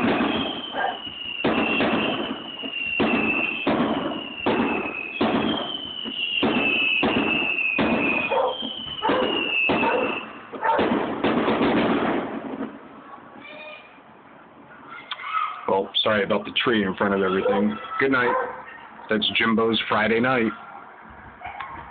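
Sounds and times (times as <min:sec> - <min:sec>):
high sliding whistle tone: 0:00.0 - 0:10.4
fireworks bursting: 0:00.0 - 0:13.6.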